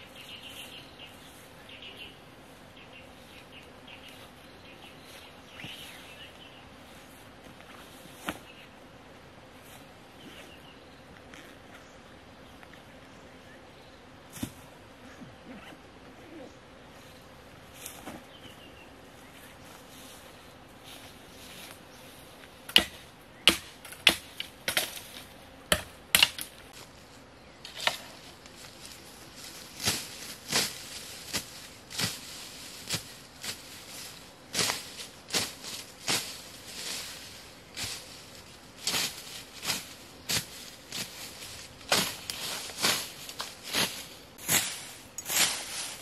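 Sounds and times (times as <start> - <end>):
machete chopping vegetation: 22.7 - 26.6, 27.7 - 28.2, 29.8 - 33.7, 34.5 - 37.0, 38.8 - 45.7.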